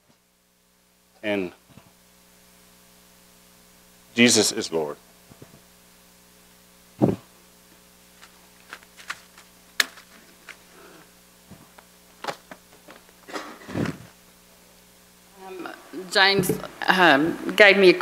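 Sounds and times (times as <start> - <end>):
steady electrical hum: 0.0 - 18.0
microphone handling thump: 7.0 - 7.3, 13.6 - 14.1, 16.3 - 16.7
paper rustle: 8.1 - 10.7.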